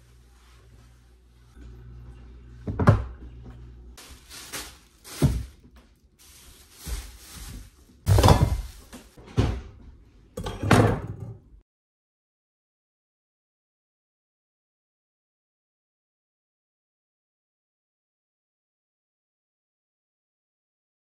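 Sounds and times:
groceries set down on countertop: 4.0s - 9.2s
plastic bags rustling: 4.0s - 9.2s.

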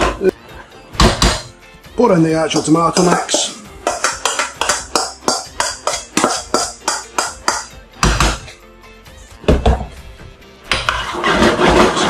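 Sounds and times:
background music: 0.0s - 12.0s
spoon scraping steel bowl: 10.7s - 12.0s.

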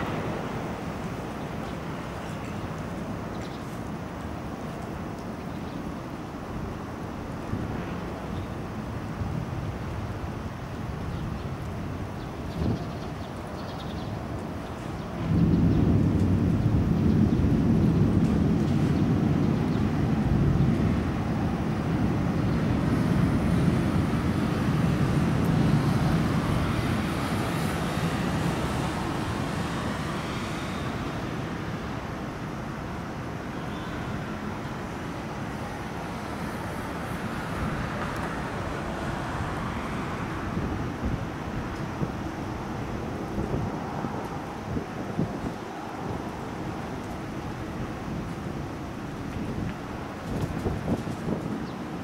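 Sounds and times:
distant rolling thunder: 0.0s - 3.0s, 14.9s - 31.8s.

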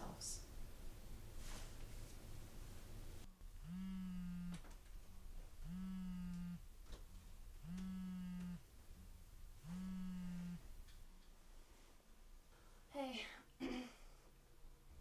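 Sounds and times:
phone vibrating on a bed: 3.6s - 4.8s, 5.6s - 6.7s, 7.6s - 8.7s, 9.6s - 10.7s.

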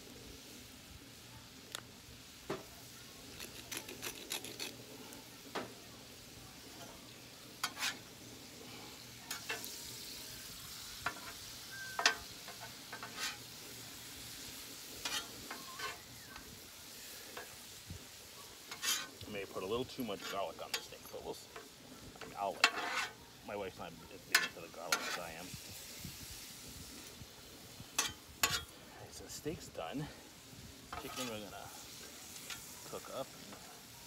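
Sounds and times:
food sizzling on a griddle: 0.0s - 34.0s
metal spatulas scraping griddle: 7.6s - 8.1s, 11.0s - 13.6s, 14.9s - 16.1s, 18.6s - 19.2s, 20.2s - 23.2s, 24.3s - 25.4s, 28.0s - 28.7s, 30.9s - 32.7s.

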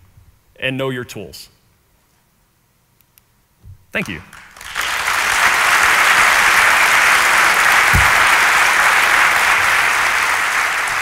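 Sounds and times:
audience applauding: 4.0s - 11.0s
low thump: 7.9s - 8.4s.

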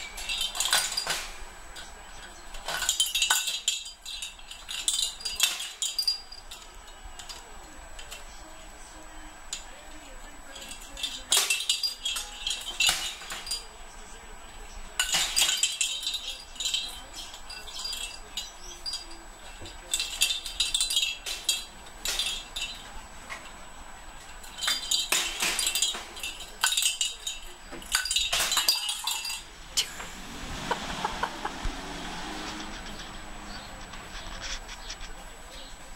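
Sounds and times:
toy ball bell jingling: 2.4s - 7.4s, 15.0s - 23.0s.

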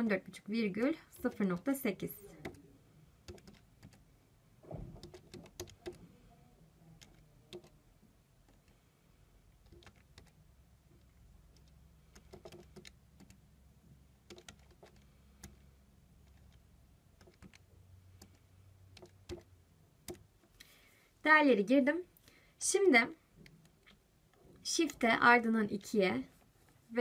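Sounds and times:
calculator keys clicking: 3.3s - 4.0s, 5.0s - 6.0s, 7.0s - 7.8s, 9.6s - 10.4s, 11.0s - 13.4s, 14.3s - 16.6s, 17.2s - 17.6s, 19.0s - 19.5s.

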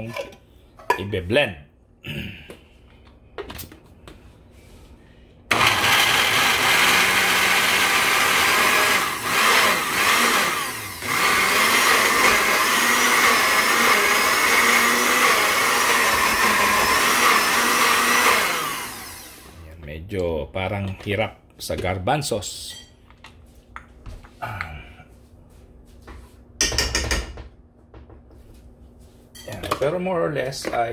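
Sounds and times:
blender running loud: 5.5s - 19.6s.

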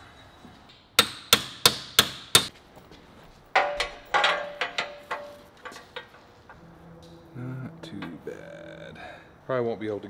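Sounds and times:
hammer striking steel: 0.7s - 2.5s, 3.6s - 6.2s.

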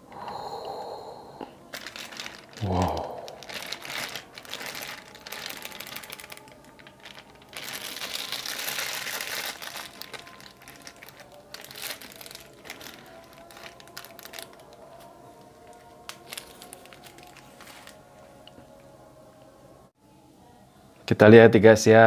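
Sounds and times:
plastic bag crinkling: 1.7s - 18.1s.

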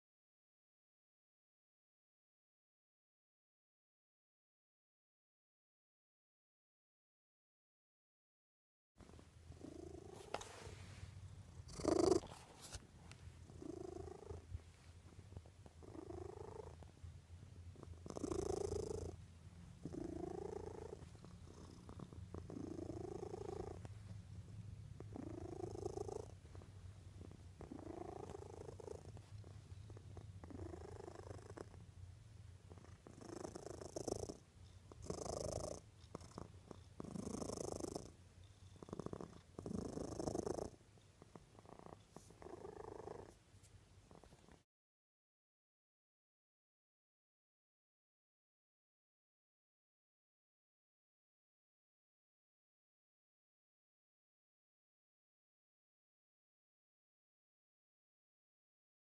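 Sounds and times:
cat purring: 9.0s - 44.6s.

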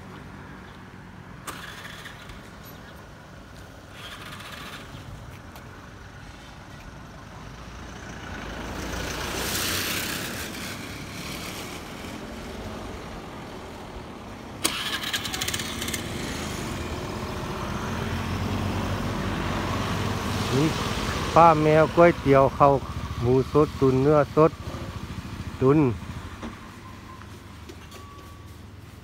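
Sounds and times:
nearby engine running: 14.6s - 19.7s.

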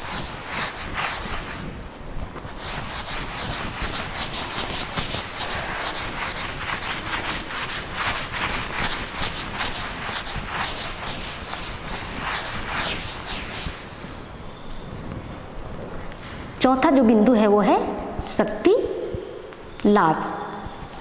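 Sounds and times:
scratchy writing on a board: 0.0s - 1.7s, 2.5s - 13.7s.

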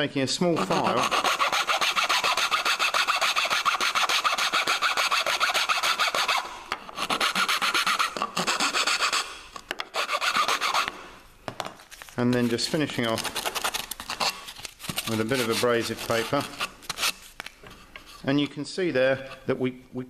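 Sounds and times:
metal file rasping on plywood: 0.6s - 9.3s, 9.9s - 11.0s, 15.2s - 16.7s.

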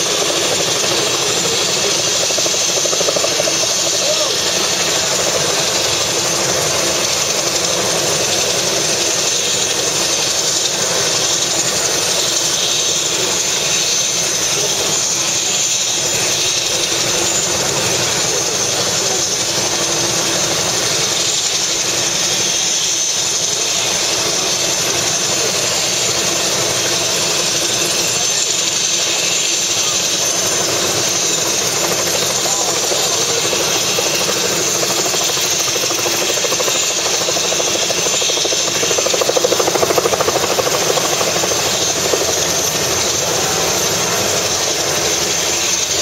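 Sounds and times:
helicopter idling: 0.0s - 46.0s.

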